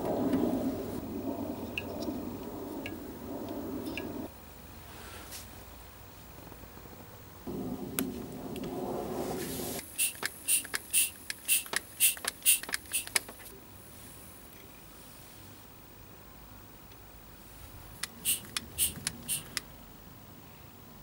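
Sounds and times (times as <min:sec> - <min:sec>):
pump and hose scuffing: 0:09.2 - 0:13.5, 0:18.1 - 0:19.5
hand vacuum pump hissing: 0:09.3 - 0:13.4, 0:18.0 - 0:19.6.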